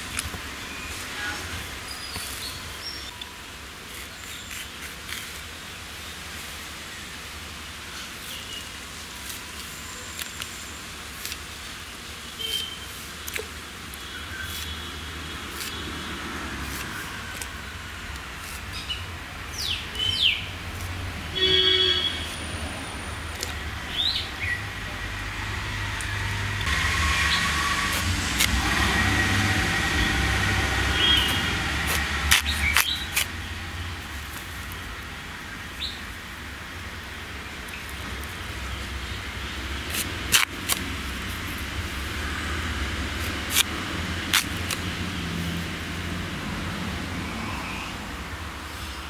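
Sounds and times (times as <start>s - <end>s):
broad rushing noise: 0.0s - 49.0s
small birds chirping: 1.8s - 5.4s, 18.4s - 22.5s, 23.3s - 24.8s, 30.8s - 33.3s.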